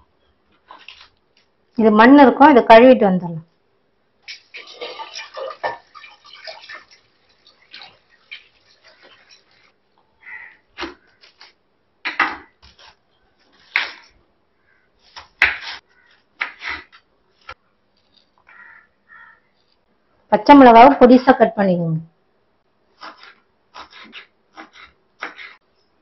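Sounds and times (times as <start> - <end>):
tap water running: 4.2 - 9.8
knife chopping on wooden board: 15.1 - 15.8, 23.0 - 25.6.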